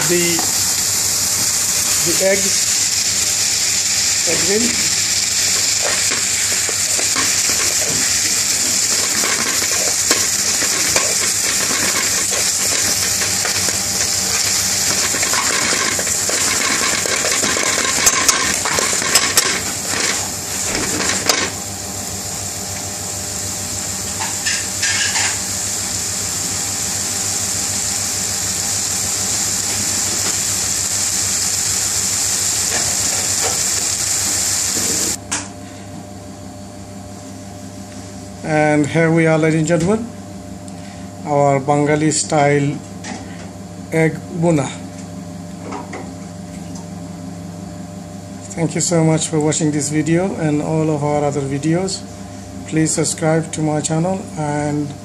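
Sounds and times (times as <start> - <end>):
sauce sizzling in a pan: 0.0 - 22.5, 23.3 - 35.2
metal spoon scraping a pan: 5.8 - 20.2.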